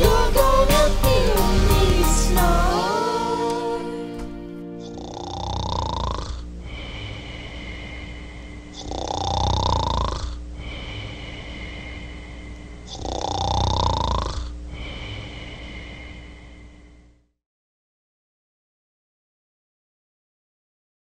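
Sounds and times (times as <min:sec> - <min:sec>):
rasping snore: 0:04.8 - 0:08.1, 0:08.7 - 0:12.1, 0:12.8 - 0:16.1.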